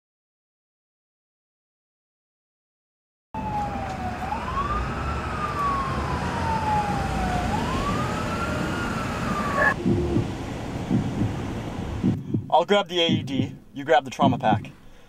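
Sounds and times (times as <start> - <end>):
emergency siren wailing: 3.4 - 12.1
low rumble: 9.3 - 13.6.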